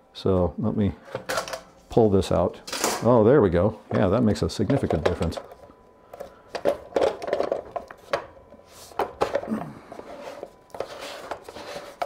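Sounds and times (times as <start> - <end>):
scraping rubs: 10.0 - 12.0.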